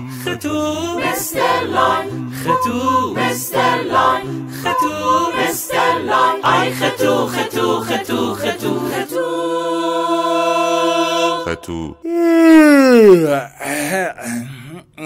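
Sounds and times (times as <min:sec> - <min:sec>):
a cappella vocal jingle: 0:00.0 - 0:12.0.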